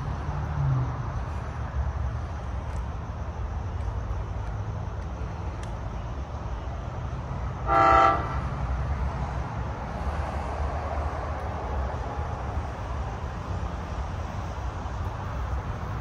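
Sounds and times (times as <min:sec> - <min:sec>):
train rumble: 0:00.0 - 0:16.0
train horn toot: 0:07.6 - 0:08.6.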